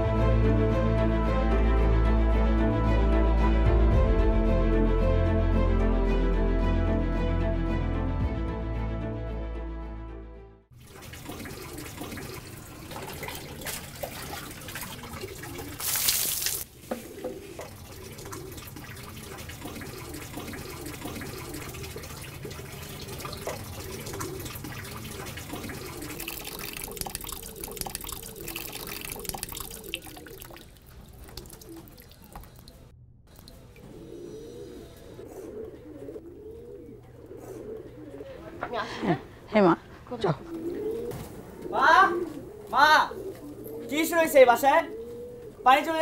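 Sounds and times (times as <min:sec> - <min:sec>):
tap water running and splashing: 0:10.7 - 0:32.8.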